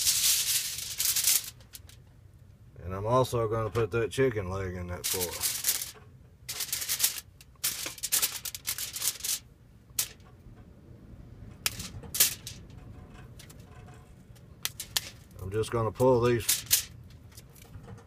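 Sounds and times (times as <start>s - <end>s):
aluminium foil crinkling: 0.0s - 2.0s, 5.0s - 10.2s, 14.6s - 15.4s, 16.2s - 17.6s.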